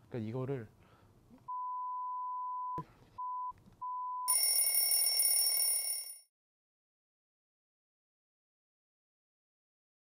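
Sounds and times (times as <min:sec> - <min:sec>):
censor beep: 0:01.5 - 0:04.3
electric bell ringing: 0:04.3 - 0:06.3.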